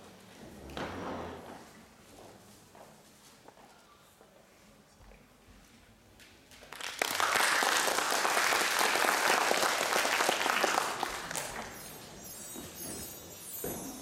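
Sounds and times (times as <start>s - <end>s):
audience applauding: 6.6s - 12.1s.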